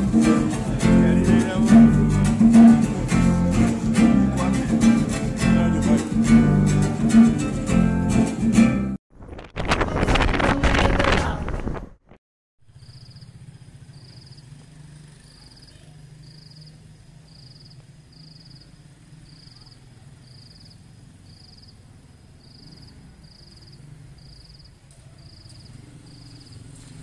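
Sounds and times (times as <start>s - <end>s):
cricket chirping: 12.7s - 26.8s.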